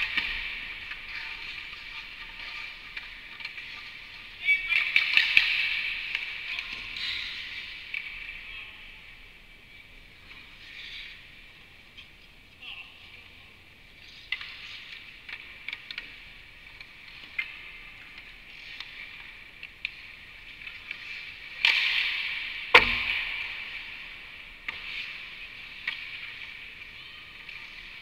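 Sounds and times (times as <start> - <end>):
ice skates scraping on ice: 0.0 - 8.2, 10.2 - 12.3, 14.0 - 22.5
hockey sticks clicking on pucks: 0.0 - 8.4, 10.1 - 12.4, 13.8 - 28.0
heavy bang against rink boards: 21.7 - 23.8.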